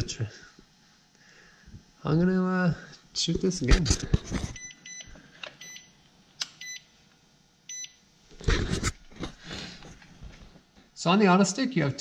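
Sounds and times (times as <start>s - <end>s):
multimeter short beeps: 4.6s - 5.9s, 6.6s - 6.8s, 7.7s - 8.0s.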